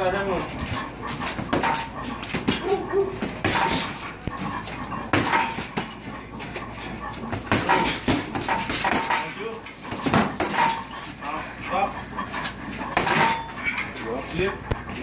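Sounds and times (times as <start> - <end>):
gloves punching a heavy bag: 1.2 - 4.0, 7.3 - 9.3, 9.9 - 10.8.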